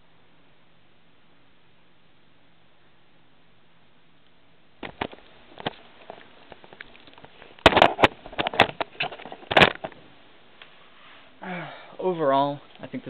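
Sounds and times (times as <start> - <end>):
camera handling knocks and scrapes: 7.6 - 10.0.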